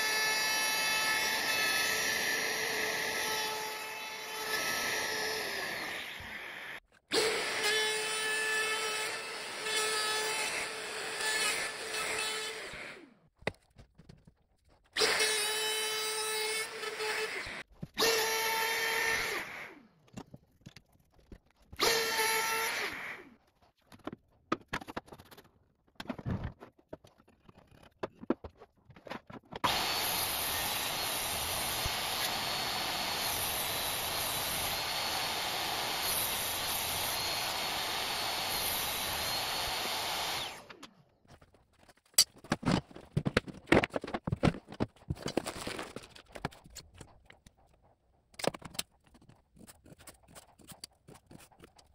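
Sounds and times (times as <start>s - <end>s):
wood router running: 0.0s - 13.0s, 29.6s - 40.8s
table saw ripping wood: 29.5s - 40.9s, 42.0s - 46.8s.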